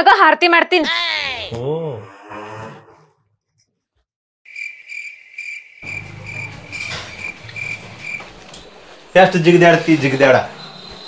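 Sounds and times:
cricket chirping: 0:04.5 - 0:11.0.

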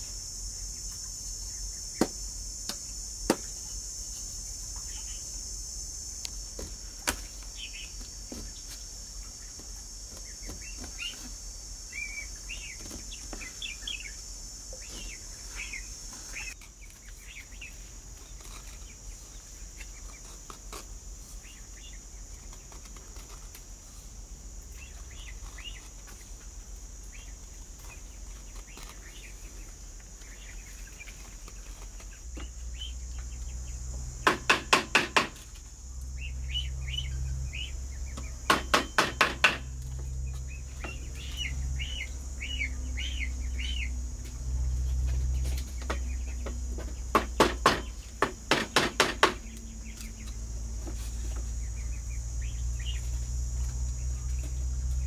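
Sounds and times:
high insect drone: 0:00.0 - 0:55.0
birds chirping: 0:07.2 - 0:20.3, 0:27.0 - 0:35.0, 0:35.9 - 0:48.2, 0:51.2 - 0:54.7
sharp knocks: 0:34.2 - 0:35.4, 0:38.2 - 0:39.7, 0:46.8 - 0:49.4.

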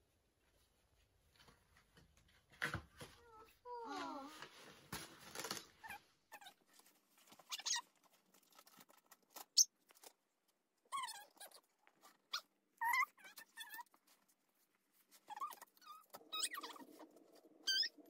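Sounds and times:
paper and card rustling: 0:03.9 - 0:17.5.

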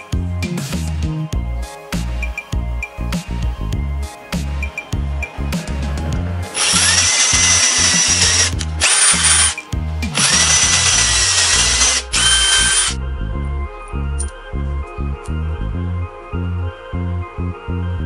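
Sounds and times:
electric drill boring into wood: 0:06.5 - 0:13.0.

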